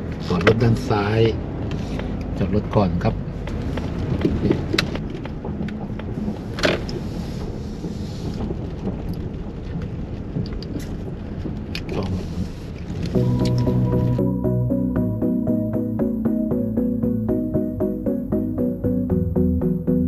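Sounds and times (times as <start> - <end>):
car rolling over wet gravel: 3.4 - 14.2
music: 13.1 - 20.0.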